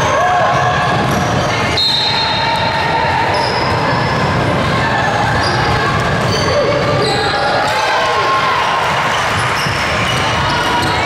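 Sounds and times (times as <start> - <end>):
gym crowd din: 0.0 - 11.0.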